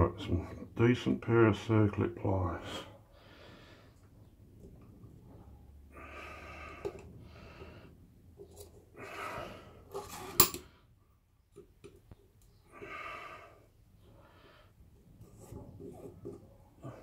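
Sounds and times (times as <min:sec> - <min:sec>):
loud breathing: 0:03.0 - 0:04.1, 0:05.8 - 0:08.1, 0:08.9 - 0:10.0.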